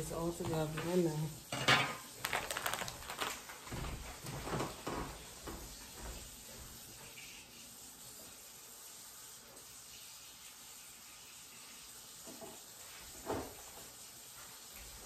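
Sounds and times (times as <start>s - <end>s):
woman's voice: 0.0s - 1.4s
dishes and utensils clinking: 0.4s - 2.8s.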